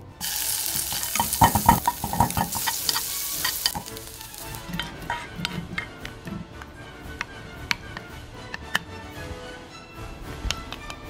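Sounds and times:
food sizzling in oil: 0:00.0 - 0:04.9.

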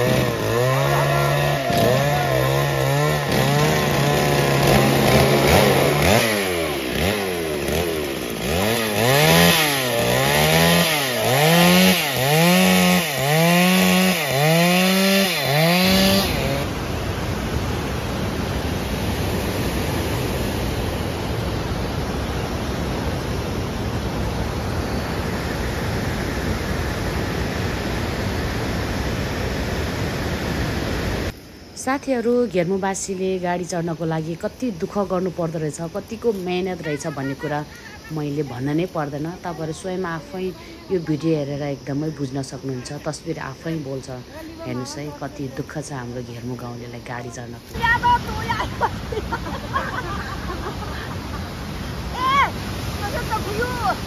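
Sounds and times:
chainsaw cutting log: 0:00.0 - 0:16.8.

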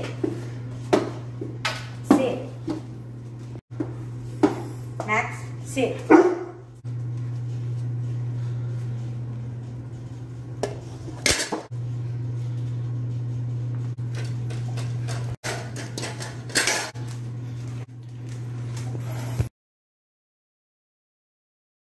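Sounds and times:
low hum: 0:06.4 - 0:19.5
dog eating from a bowl: 0:14.0 - 0:19.1
metal bowl clattering: 0:14.1 - 0:17.2.

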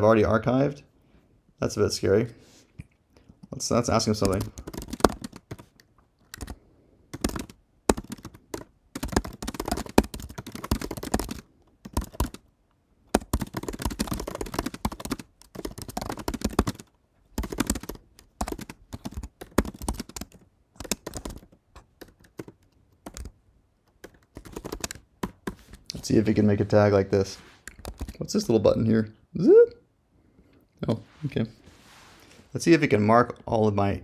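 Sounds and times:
typing on computer keyboard: 0:04.1 - 0:12.4, 0:13.1 - 0:25.6, 0:27.7 - 0:28.2.

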